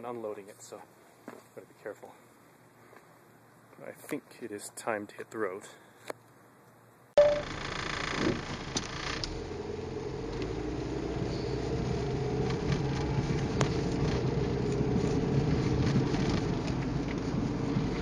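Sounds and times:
car engine and road drone: 7.2s - 18.0s
interior clicks and creaks: 12.4s - 14.8s.

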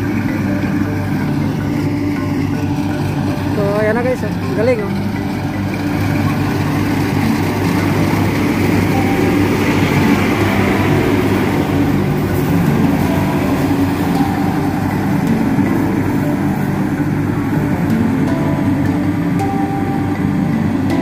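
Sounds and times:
mechanical rush: 0.0s - 19.7s
combine harvester engine drone: 0.0s - 21.0s.

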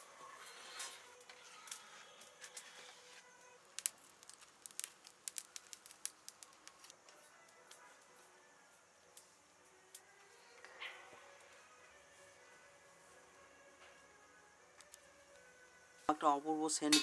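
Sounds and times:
wood fire crackling: 0.0s - 8.4s, 14.0s - 16.8s.

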